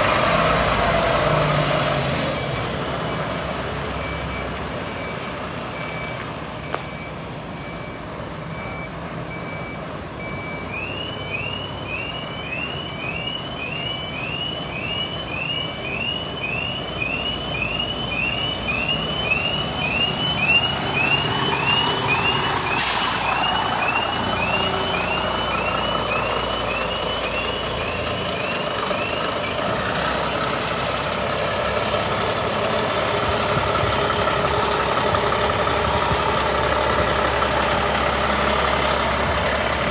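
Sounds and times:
diesel engine running: 0.0 - 7.7, 14.1 - 39.9
reversing alarm beeping: 2.0 - 39.4
air brake hiss: 22.8 - 23.6.

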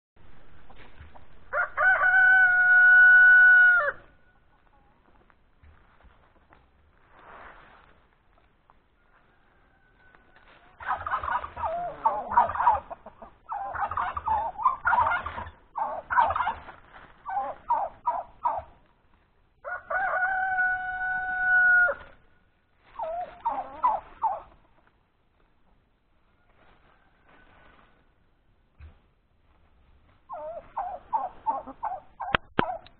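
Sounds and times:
turkeys gobbling: 0.6 - 5.0, 9.0 - 18.9, 19.6 - 22.2, 22.8 - 24.9, 30.2 - 32.9
rooster crowing: 1.5 - 4.1, 9.0 - 10.7, 19.6 - 22.1.

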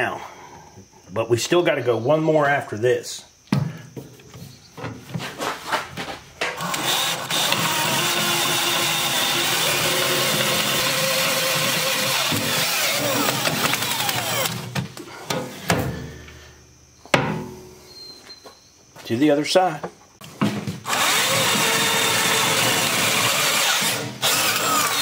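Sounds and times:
cordless drill drilling through steel: 6.6 - 14.6, 20.9 - 25.0.

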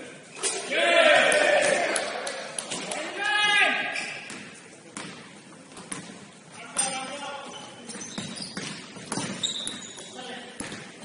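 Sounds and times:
basketball bouncing on court: 4.2 - 6.2, 7.8 - 11.0.

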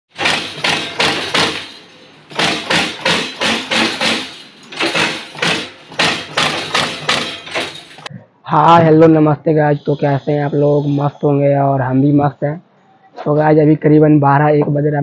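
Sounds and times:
crimping press stamping: 0.1 - 8.1.

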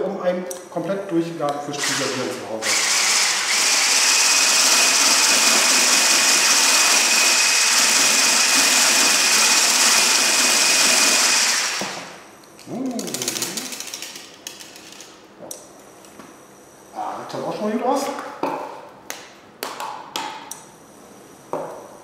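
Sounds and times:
kitchen appliance motor whining: 1.7 - 12.2.

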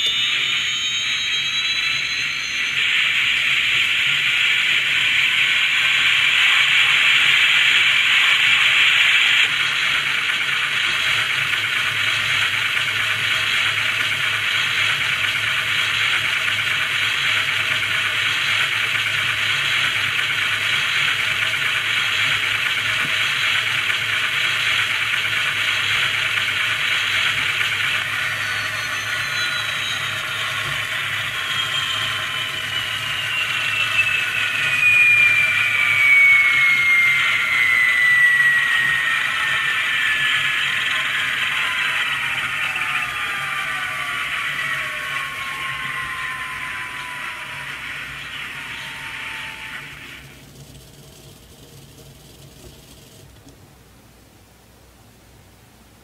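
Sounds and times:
falling whine: 0.0 - 53.8.

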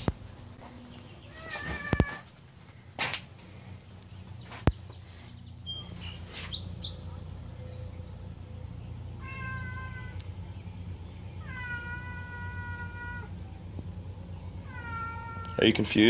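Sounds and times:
cat meowing: 1.3 - 2.3, 9.2 - 10.2, 11.4 - 13.4, 14.6 - 15.7.

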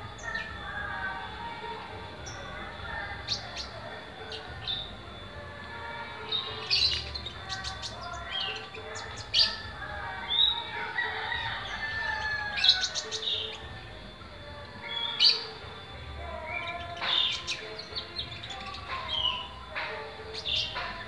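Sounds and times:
small bird chirping and trilling: 6.3 - 9.6, 16.4 - 19.6.

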